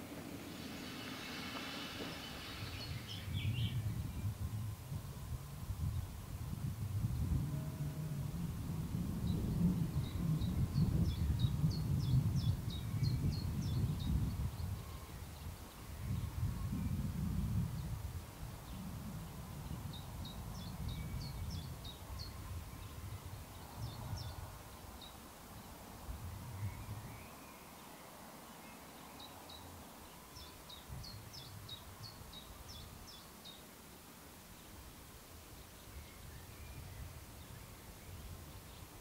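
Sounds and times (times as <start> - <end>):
songbird chirping: 0.0 - 4.4, 19.7 - 39.0.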